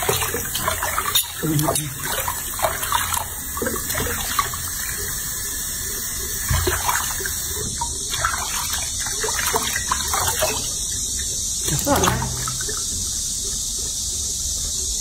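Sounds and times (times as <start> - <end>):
tap running into basin water: 0.0 - 13.2
hands splashing water: 11.6 - 13.0.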